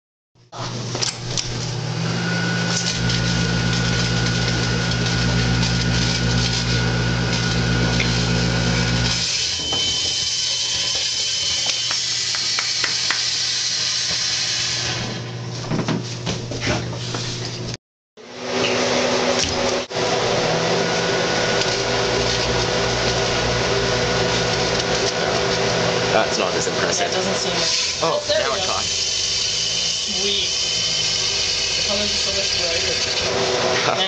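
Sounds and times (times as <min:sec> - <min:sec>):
microwave oven humming: 0:00.6 - 0:12.0, 0:14.9 - 0:34.0
firework hissing and crackling: 0:11.6 - 0:14.5, 0:28.1 - 0:33.0.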